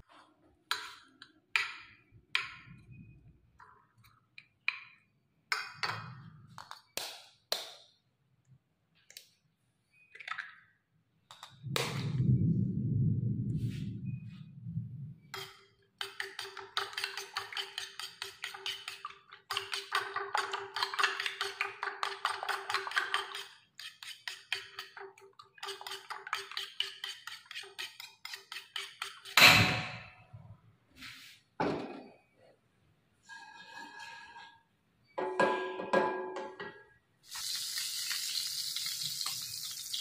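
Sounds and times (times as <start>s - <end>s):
low handling rumble: 11.6s - 15.2s
eggs being beaten on a plate: 15.3s - 29.4s.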